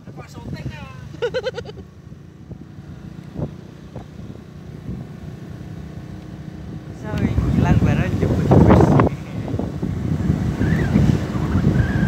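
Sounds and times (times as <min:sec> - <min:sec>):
vehicle engine drone: 0:00.0 - 0:12.0.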